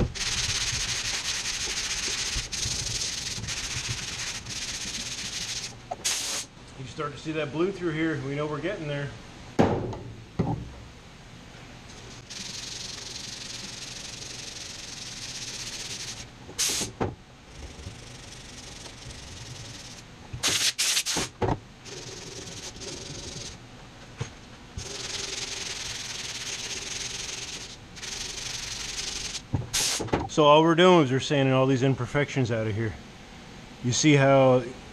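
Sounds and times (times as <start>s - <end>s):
hand sanding with sandpaper: 0.0s - 6.5s, 12.3s - 16.8s, 22.0s - 23.6s, 24.8s - 30.0s.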